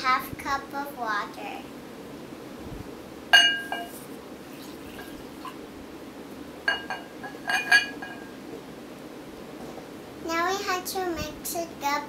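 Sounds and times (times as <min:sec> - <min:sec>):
glass jug clinking against bowl: 0:03.4 - 0:04.0, 0:06.7 - 0:08.4.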